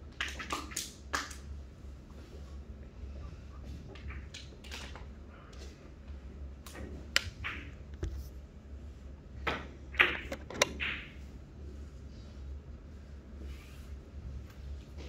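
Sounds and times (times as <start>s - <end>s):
billiard balls colliding: 0.1s - 1.5s, 6.7s - 8.2s, 9.4s - 11.3s
cue striking ball: 9.5s - 11.2s.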